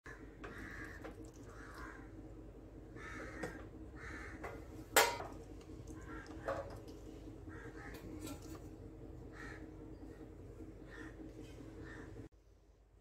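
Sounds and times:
crows cawing: 0.1 - 4.7, 5.9 - 8.3, 9.2 - 10.2, 10.8 - 12.3.

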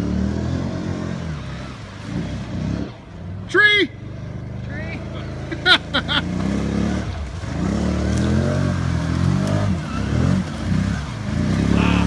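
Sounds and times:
atv engine revving: 0.0 - 12.0
person shouting: 11.7 - 12.0.

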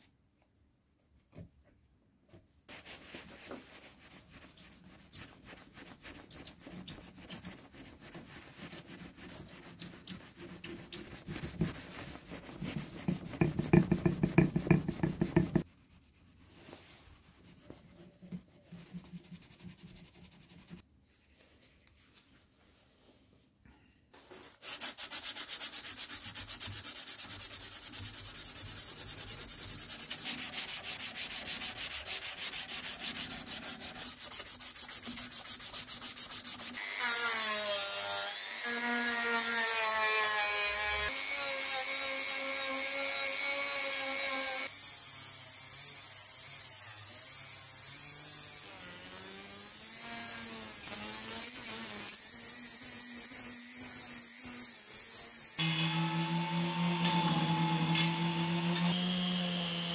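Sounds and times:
sandpaper rasping on metal tube: 2.7 - 17.0, 24.5 - 37.8.

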